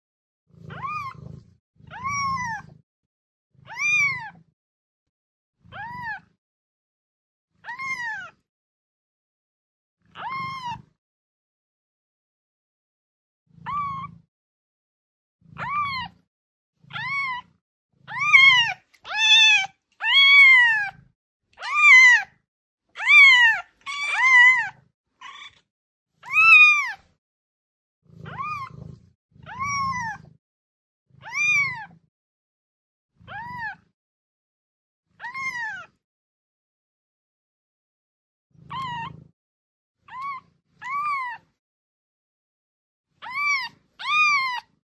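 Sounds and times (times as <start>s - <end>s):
kitten meowing: 0.7s - 1.2s, 1.9s - 2.7s, 3.7s - 4.4s, 5.7s - 6.2s, 7.6s - 8.4s, 10.1s - 10.9s, 13.6s - 14.1s, 15.6s - 16.2s, 16.9s - 17.5s, 18.1s - 21.0s, 21.6s - 22.3s, 23.0s - 25.6s, 26.2s - 27.0s, 28.2s - 28.8s, 29.4s - 30.3s, 31.2s - 31.9s, 35.2s - 35.9s, 38.7s - 39.1s, 40.1s - 41.5s, 43.2s - 44.8s.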